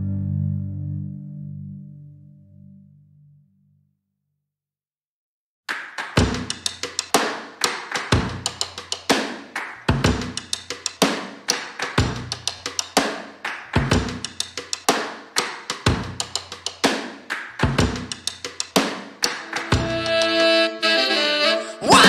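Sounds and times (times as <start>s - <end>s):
drum kit beat: 5.9s - 21.3s.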